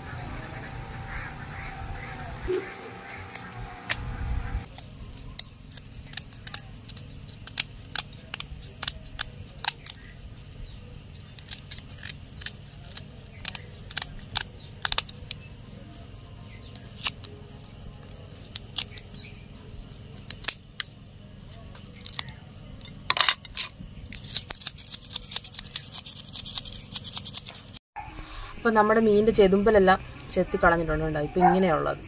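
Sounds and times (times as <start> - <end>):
scissors snipping fish: 11.4 - 15.4, 24.2 - 27.8.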